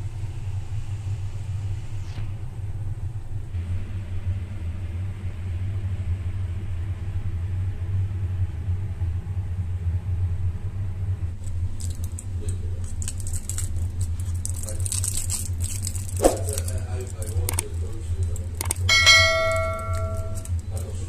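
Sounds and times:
low rumble: 0:00.0 - 0:21.0
foil muffin liners crackling: 0:11.4 - 0:21.0.

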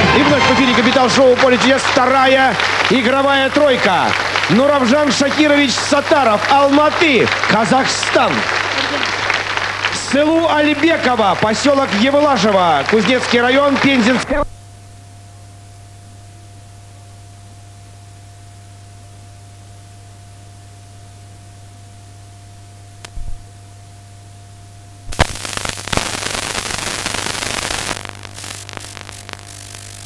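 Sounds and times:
loud static hiss and crackles: 0:00.0 - 0:15.0, 0:25.0 - 0:30.0
low mains hum: 0:00.0 - 0:30.0.

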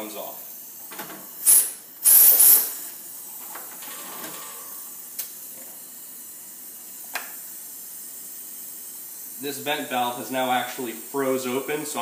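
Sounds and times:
faint hiss of venting gas: 0:00.0 - 0:03.7, 0:04.5 - 0:12.0
loud hiss of escaping gas: 0:00.4 - 0:03.3.

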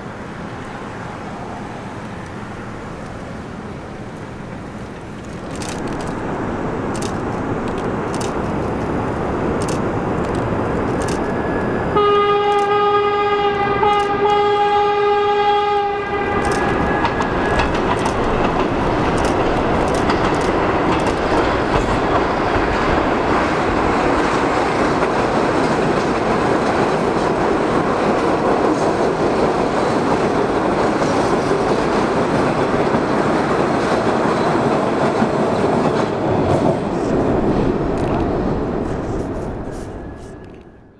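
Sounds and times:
subway cars rumbling on tracks: 0:00.0 - 0:40.9
wheels clattering on rails: 0:04.8 - 0:12.8, 0:16.0 - 0:40.8
train horn blast: 0:11.9 - 0:17.3.

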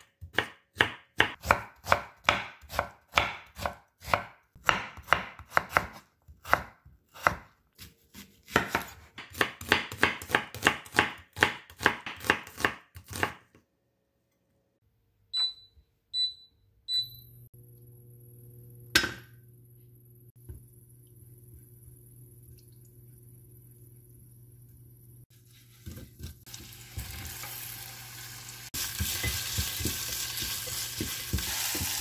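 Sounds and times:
knife chopping on wooden board: 0:00.2 - 0:13.4, 0:29.0 - 0:32.0
cooktop hum and high whine: 0:13.0 - 0:32.0
cooktop control beeps: 0:15.3 - 0:17.5.

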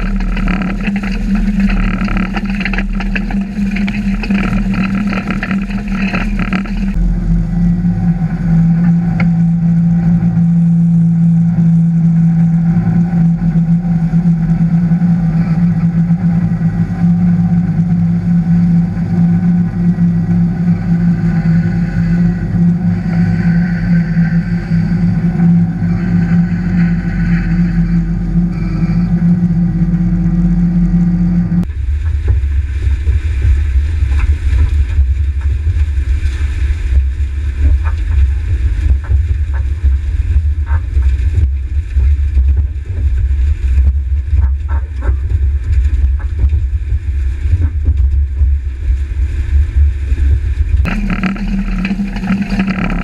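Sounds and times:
implement working: 0:00.0 - 0:12.5, 0:50.8 - 0:53.0
tractor engine hum: 0:00.0 - 0:53.0.

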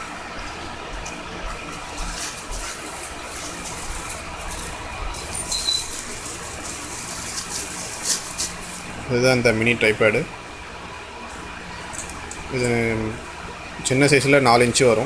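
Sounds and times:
plastic and paper crinkling: 0:01.8 - 0:09.0.

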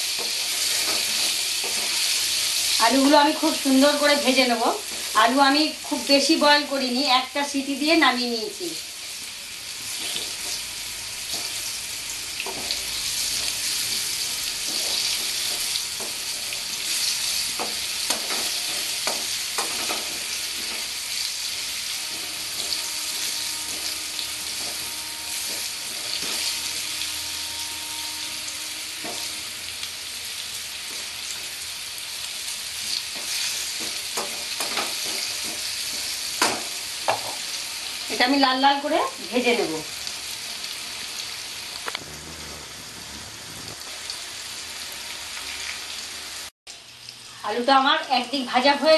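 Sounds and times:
potatoes sizzling in oil: 0:00.0 - 0:48.9
wooden spatula scraping pan: 0:22.0 - 0:26.9.

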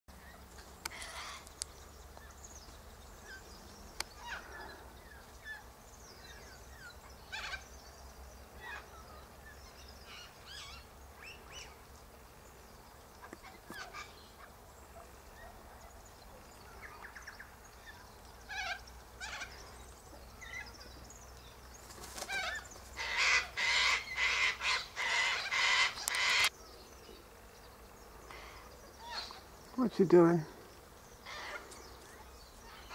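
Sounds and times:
cockatoo calls: 0:00.2 - 0:01.5, 0:04.1 - 0:07.8, 0:08.6 - 0:09.3, 0:13.2 - 0:20.8, 0:22.0 - 0:26.5, 0:28.3 - 0:29.6, 0:31.2 - 0:32.9.

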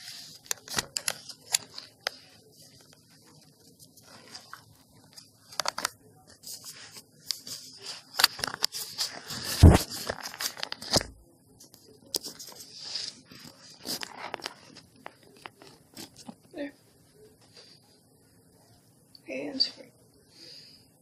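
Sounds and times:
phone handling scraping and rustling: 0:00.0 - 0:11.1, 0:12.1 - 0:16.4.

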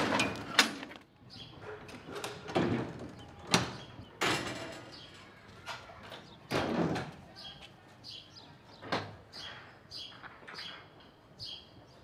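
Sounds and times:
metal trailer and hurdles clattering: 0:00.0 - 0:01.0, 0:01.7 - 0:07.2.

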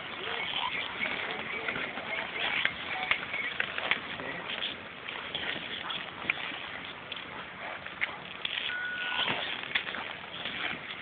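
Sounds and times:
ski boots and skis clacking: 0:00.0 - 0:11.0
short high beep: 0:08.7 - 0:09.4.

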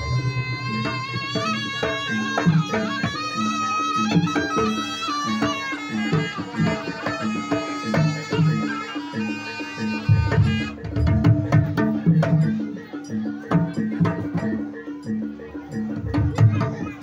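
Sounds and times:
drum strokes: 0:00.0 - 0:17.0.

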